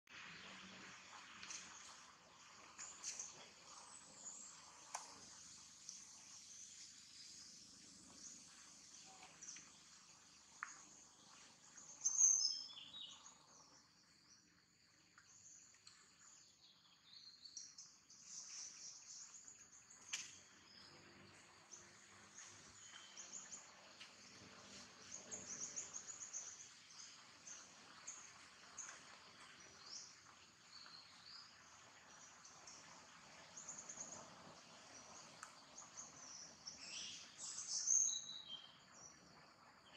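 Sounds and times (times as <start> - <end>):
insect chorus: 0.3 - 39.9
birds chirping: 15.2 - 39.9.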